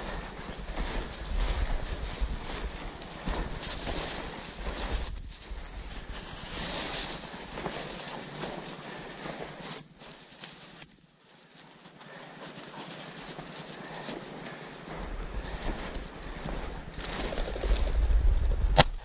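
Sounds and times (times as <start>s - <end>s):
wind buffeting microphone: 0.0s - 7.6s, 15.0s - 19.0s
footsteps in snow: 0.0s - 18.5s
rustling through scrub: 0.0s - 18.8s
high-pitched pips: 10.8s - 11.1s.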